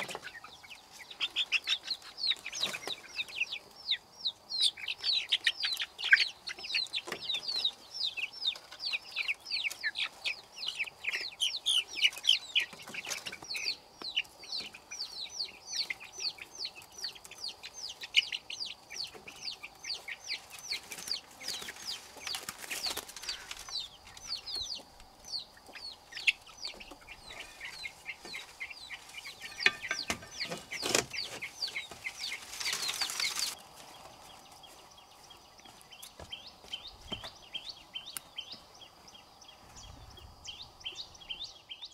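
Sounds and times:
chicks peeping: 0.0 - 41.9
wing-flapping rustle: 20.8 - 23.8, 30.2 - 34.3.

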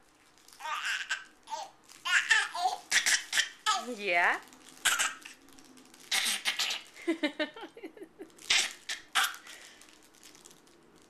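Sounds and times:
baby laughing: 0.6 - 3.9, 4.8 - 5.3, 6.1 - 9.4.

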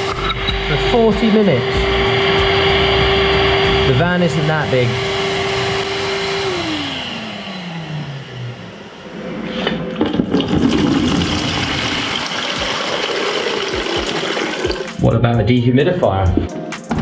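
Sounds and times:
vacuum motor winding down: 0.0 - 15.0
water pouring into plastic bucket: 9.9 - 15.0.

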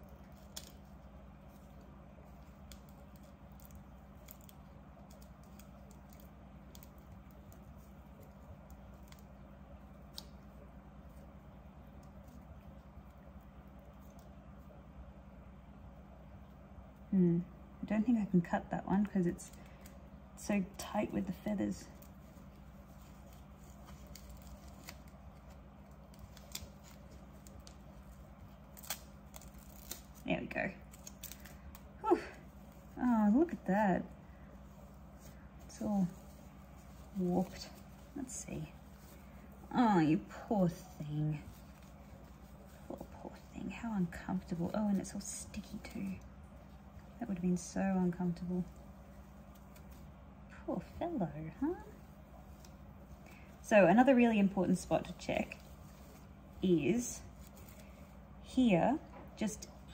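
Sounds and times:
scissors and tape crackling: 0.0 - 10.5, 22.9 - 33.6
tape ticks and crackles: 0.0 - 14.9, 18.4 - 47.7, 48.3 - 51.0
steady low hum: 0.0 - 59.9.

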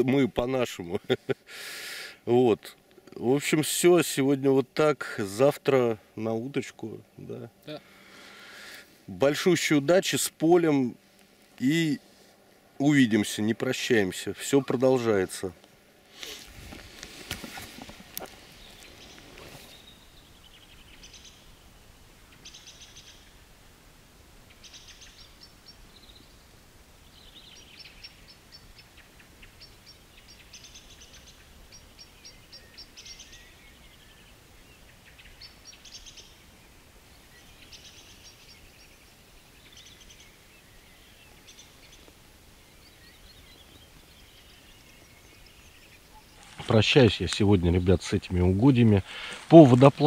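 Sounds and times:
faint low background noise: 0.0 - 50.0
small songbirds singing: 12.8 - 23.5, 24.4 - 50.0.

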